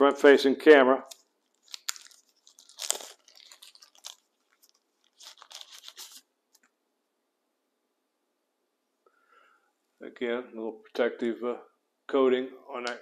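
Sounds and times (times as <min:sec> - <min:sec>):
packaging rustling and crinkling: 0:01.0 - 0:06.7.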